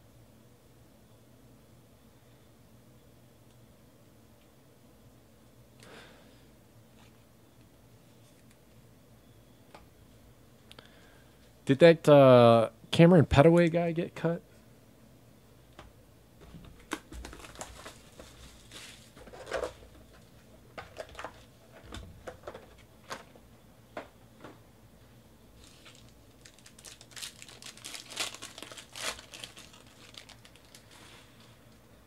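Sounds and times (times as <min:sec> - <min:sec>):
foil wrappers crinkling and tearing: 0:16.8 - 0:21.5, 0:25.6 - 0:31.8.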